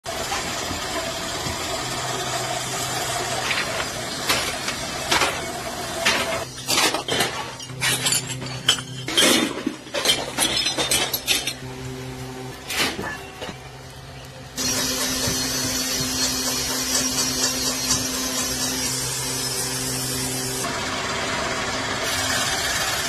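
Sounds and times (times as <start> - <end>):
scrap metal clinking: 3.4 - 11.6.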